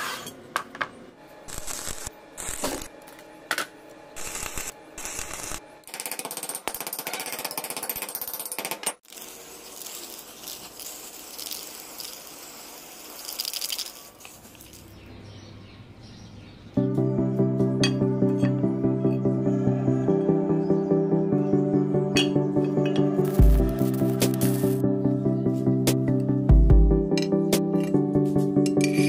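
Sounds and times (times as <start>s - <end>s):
harsh crackling bursts: 9.0s - 14.3s, 23.2s - 24.8s
steady hiss: 9.1s - 14.8s.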